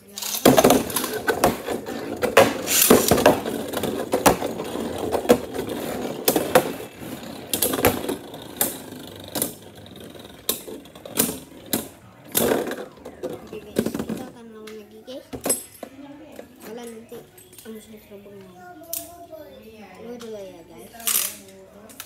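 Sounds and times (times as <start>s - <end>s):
spinning tops whirring and rattling: 0.1s - 14.2s.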